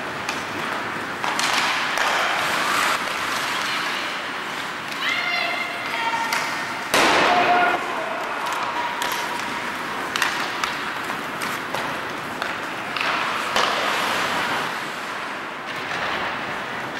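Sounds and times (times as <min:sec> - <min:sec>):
hockey sticks and puck clacking: 0:00.0 - 0:16.9
skating noise: 0:00.0 - 0:16.9
crowd noise: 0:02.3 - 0:13.9.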